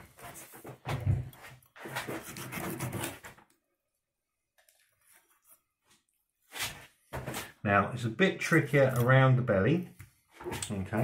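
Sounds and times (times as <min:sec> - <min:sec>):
knife rasping along fish bone: 0:01.8 - 0:03.2.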